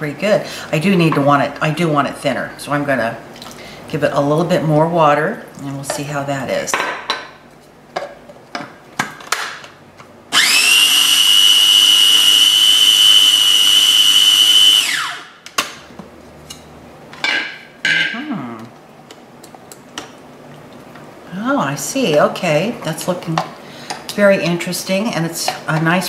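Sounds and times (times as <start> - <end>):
food processor whining: 10.3 - 15.4.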